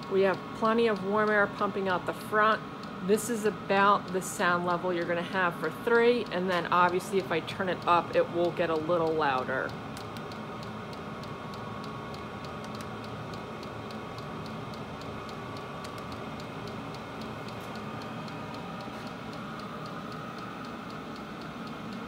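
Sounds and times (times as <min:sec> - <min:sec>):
heater blower rushing: 0:00.0 - 0:10.2
fan whine: 0:00.0 - 0:22.0.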